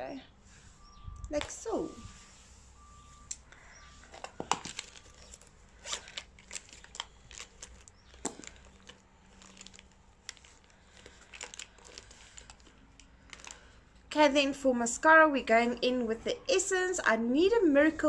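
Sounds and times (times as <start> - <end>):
plastic packaging clicks and rustles: 3.5 - 14.1.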